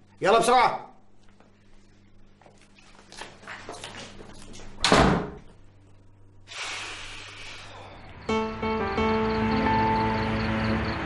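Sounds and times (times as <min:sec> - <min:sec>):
door slamming shut: 0:04.8 - 0:05.4.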